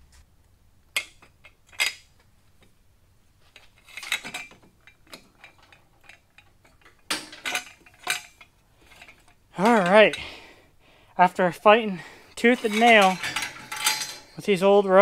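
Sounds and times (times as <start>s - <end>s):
metal hand tools clinking: 3.8s - 10.3s, 12.4s - 15.0s.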